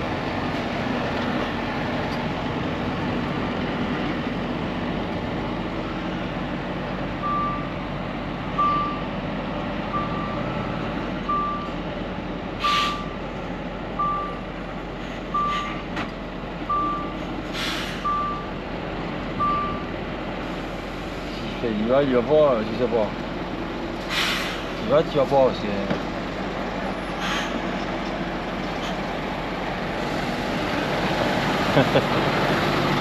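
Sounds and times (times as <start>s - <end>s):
diesel truck engine running: 0.0s - 33.0s
reversing alarm beeps: 7.2s - 7.7s, 8.6s - 9.1s, 9.9s - 10.4s, 11.3s - 11.7s, 14.0s - 14.4s, 15.3s - 15.8s, 16.7s - 17.2s, 18.0s - 18.5s, 19.4s - 19.9s
air brake hiss: 12.6s - 13.1s, 17.5s - 18.1s, 24.1s - 24.7s, 27.2s - 27.6s.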